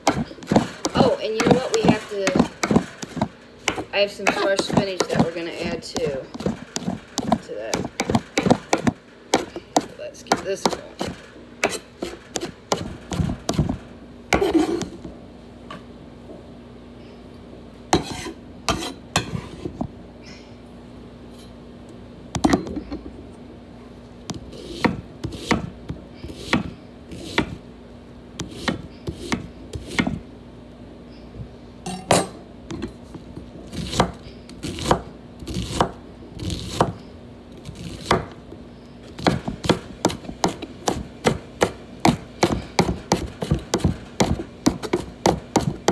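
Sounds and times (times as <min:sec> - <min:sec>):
knife chopping on wooden board: 0:00.0 - 0:14.9, 0:26.3 - 0:27.6, 0:28.4 - 0:30.2, 0:33.7 - 0:37.0, 0:37.7 - 0:38.4, 0:39.2 - 0:45.9.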